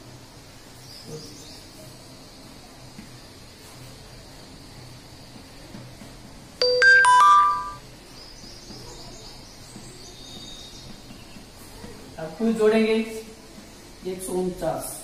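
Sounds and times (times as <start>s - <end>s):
electronic chime: 6.6s - 7.8s.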